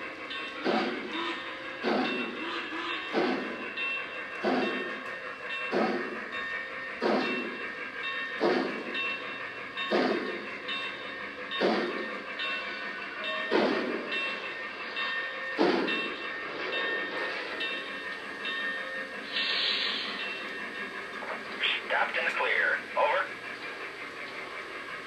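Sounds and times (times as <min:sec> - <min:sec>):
steam locomotive chuffs: 0:00.0 - 0:25.0
steam hiss: 0:14.7 - 0:25.0.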